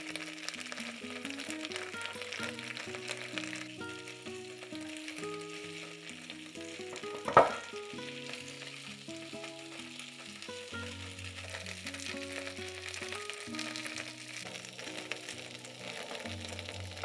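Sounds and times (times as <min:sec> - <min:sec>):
ribs sizzling in a grill pan: 0:00.0 - 0:17.0
tongs knocking on pan: 0:06.9 - 0:07.7.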